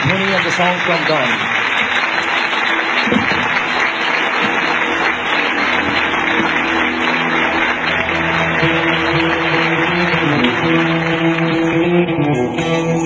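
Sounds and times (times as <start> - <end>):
audience applauding: 0.0 - 12.2
guitar-led song: 2.8 - 13.0.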